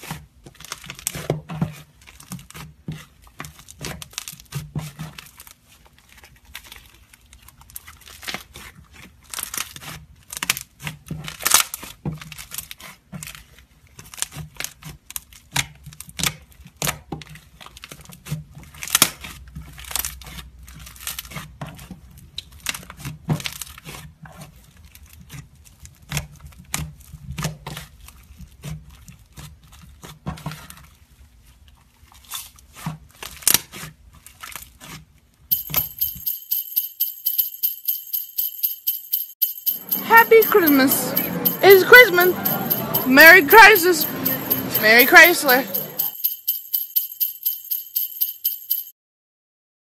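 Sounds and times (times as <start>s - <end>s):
small bells shaking in rhythm: 35.5s - 48.9s.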